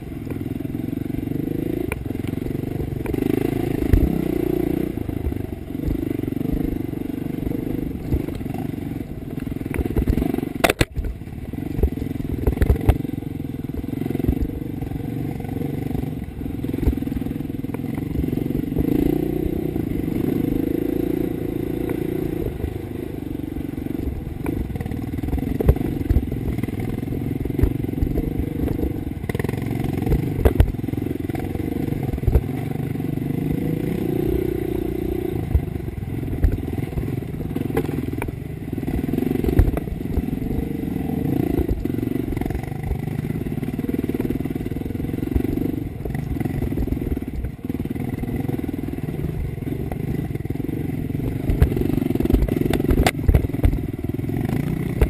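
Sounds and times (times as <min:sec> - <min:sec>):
dirt bike engine revving: 0:00.8 - 0:10.8.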